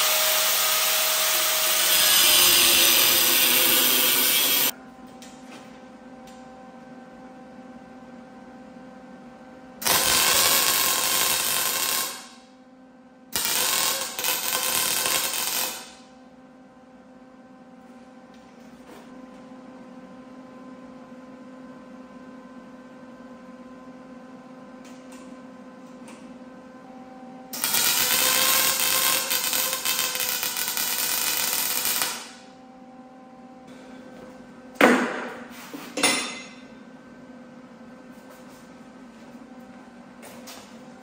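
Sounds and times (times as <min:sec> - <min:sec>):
welder running: 0:00.0 - 0:04.8, 0:09.8 - 0:12.4, 0:13.3 - 0:16.1, 0:27.5 - 0:32.6
shop hum: 0:00.0 - 0:41.0.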